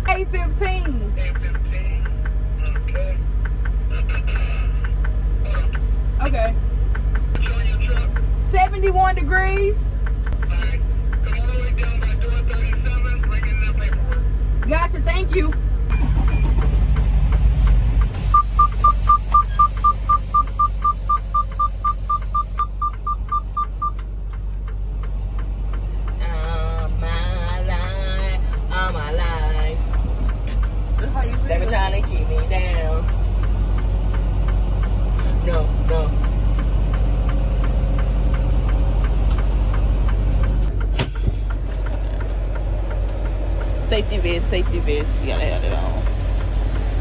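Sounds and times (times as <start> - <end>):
truck engine rumble: 0.0 - 47.0
rapid high electronic beeping: 18.3 - 24.0.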